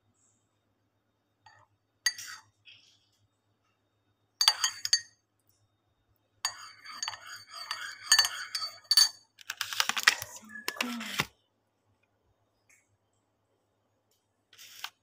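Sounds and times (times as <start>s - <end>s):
spoon clinking against ceramic cup: 1.5s - 2.5s, 4.4s - 5.2s, 6.4s - 9.3s
spoon stirring in cup: 1.5s - 2.9s, 4.4s - 5.2s, 6.4s - 11.0s.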